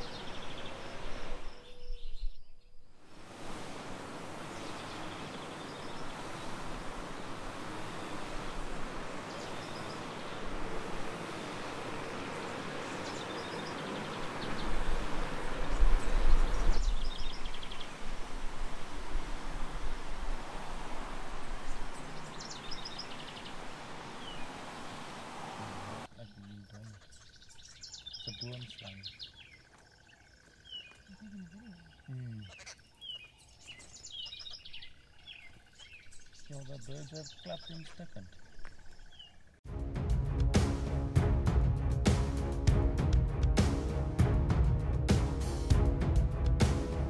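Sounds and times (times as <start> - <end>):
small birds alarm calling: 0.0 - 2.4, 4.4 - 15.1, 26.0 - 39.6
steady outdoor hiss: 0.0 - 47.0
low human voice murmuring: 31.1 - 32.5
heavy low rumble: 39.7 - 47.0.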